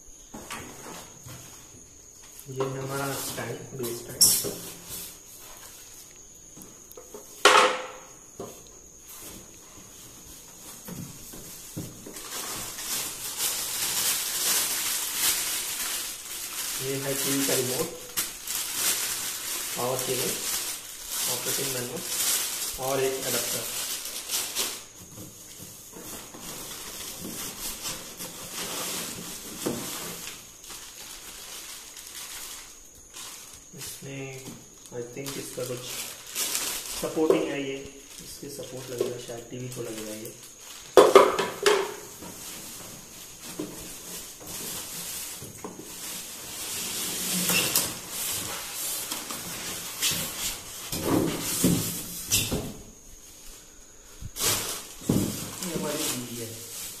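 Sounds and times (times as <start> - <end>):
plastic packaging rustling: 8.9 - 57.0
sharp crinkles: 11.6 - 34.1, 34.7 - 41.0.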